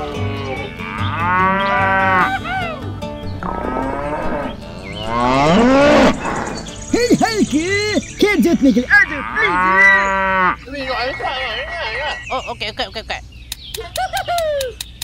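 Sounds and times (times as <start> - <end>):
cattle mooing: 0.0 - 2.4, 3.3 - 6.8, 8.9 - 12.2.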